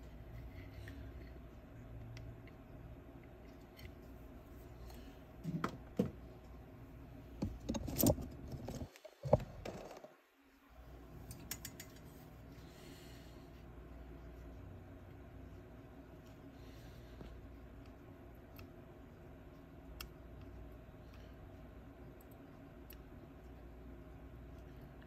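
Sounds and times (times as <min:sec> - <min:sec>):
steady low hum: 0:00.0 - 0:25.0
small tools clicking and knocking: 0:11.3 - 0:12.0.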